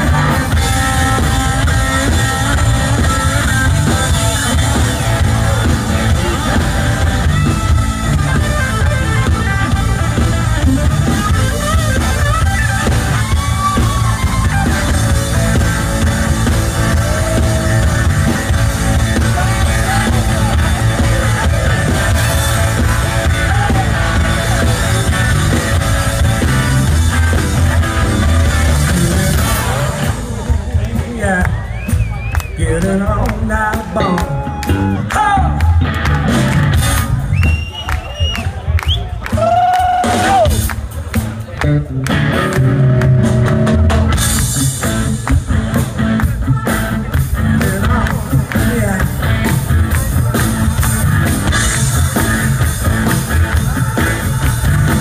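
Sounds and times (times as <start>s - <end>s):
live rock band playing: 0.0s - 55.0s
person singing: 32.5s - 35.8s, 47.4s - 49.6s.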